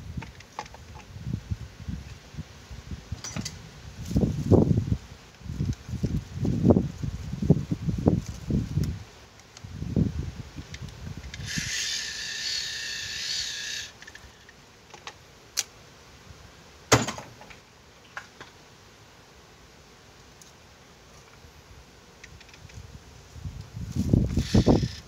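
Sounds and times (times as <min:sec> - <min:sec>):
hiss: 0:11.4 - 0:14.1.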